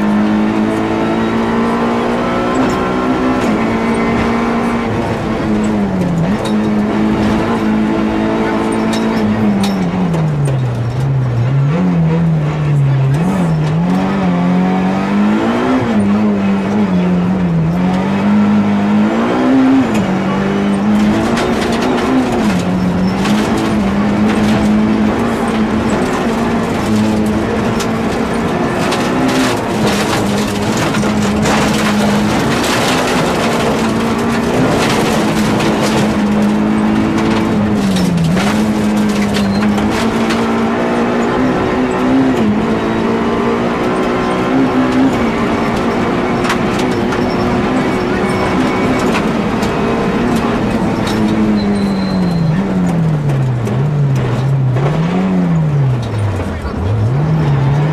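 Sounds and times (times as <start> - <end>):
car engine revving hard: 0.0 - 57.9
gravel clattering against car: 19.9 - 57.8.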